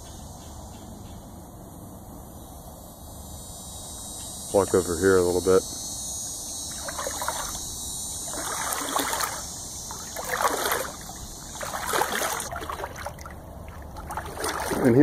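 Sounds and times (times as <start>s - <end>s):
footsteps wading through water: 6.7s - 15.0s.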